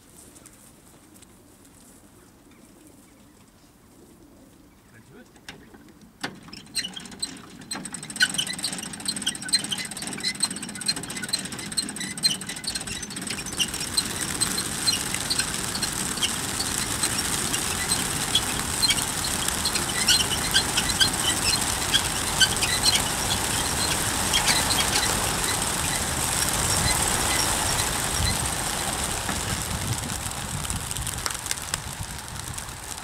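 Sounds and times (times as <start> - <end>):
pigeon wings flapping: 7.5 - 33.0
sharp wing claps: 13.2 - 25.9.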